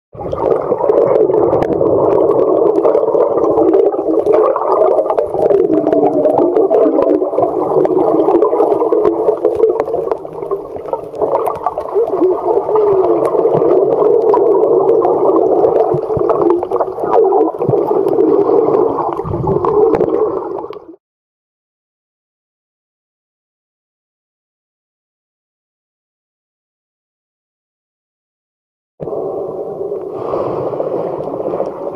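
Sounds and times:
muffled underwater gurgling: 0.2s - 21.0s.

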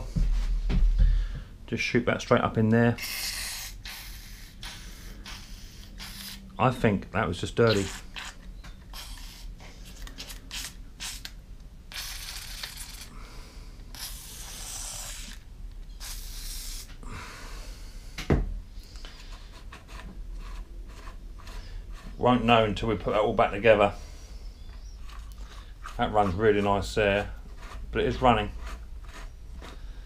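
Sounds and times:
aerosol spray hissing: 3.0s - 6.5s, 8.9s - 9.5s, 13.9s - 15.4s, 16.0s - 17.0s.

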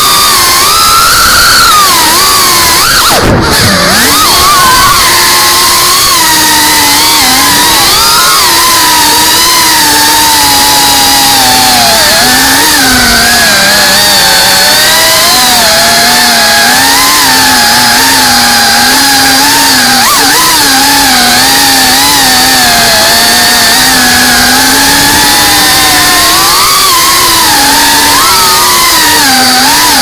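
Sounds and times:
drone motors whining: 0.0s - 30.0s.

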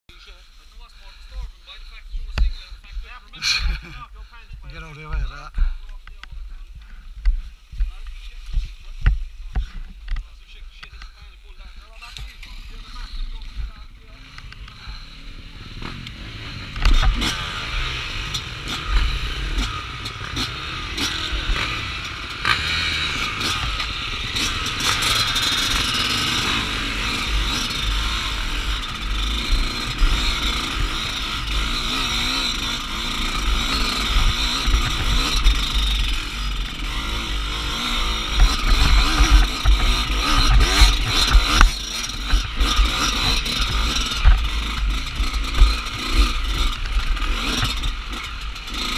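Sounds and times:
dirt bike engine revving: 0.2s - 48.9s
bike rattling over bumps: 15.8s - 48.9s.

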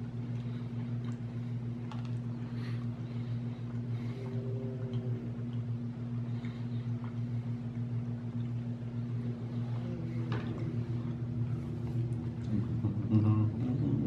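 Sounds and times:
low mains hum: 0.0s - 14.0s.

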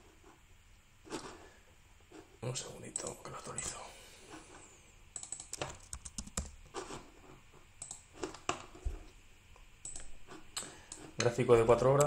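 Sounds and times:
keyboard and mouse clicks: 5.1s - 6.6s, 7.8s - 8.7s, 9.8s - 11.4s.

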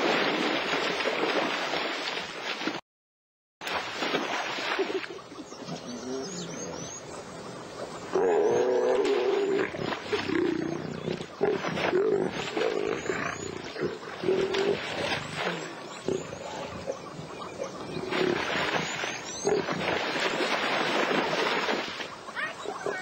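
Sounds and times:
water splashing: 0.0s - 2.8s, 3.6s - 23.0s
lions growling and snarling: 8.1s - 20.3s.

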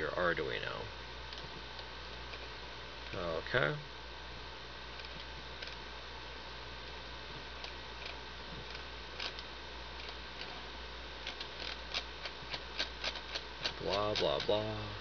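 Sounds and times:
electrical hum: 0.0s - 15.0s
computer mouse clicks: 5.0s - 5.8s, 7.6s - 10.6s, 11.2s - 14.6s.

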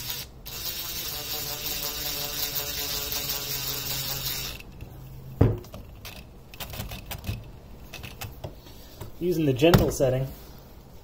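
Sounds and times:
cordless drill driving a screw: 0.0s - 4.6s.

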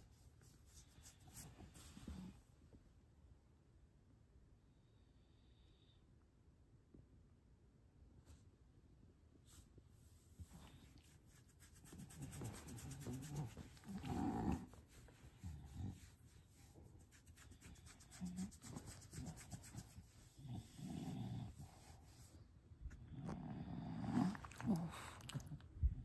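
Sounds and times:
dog grunting and snoring: 13.8s - 14.8s, 20.4s - 21.6s, 23.0s - 25.6s.

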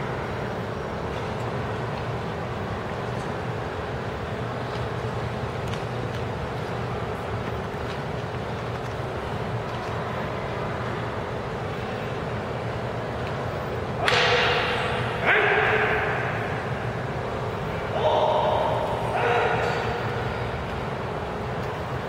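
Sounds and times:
loud shouts in a hall: 13.9s - 20.7s.

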